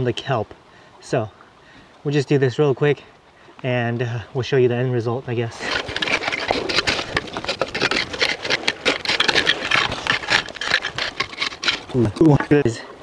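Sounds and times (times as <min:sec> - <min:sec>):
rake scraping through wet gravel: 0:05.5 - 0:12.7
stones rattling against tines: 0:05.6 - 0:12.7.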